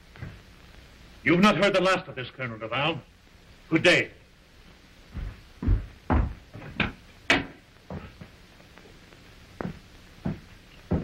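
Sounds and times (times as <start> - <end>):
soft thuds: 5.1 - 8.3, 9.6 - 11.0.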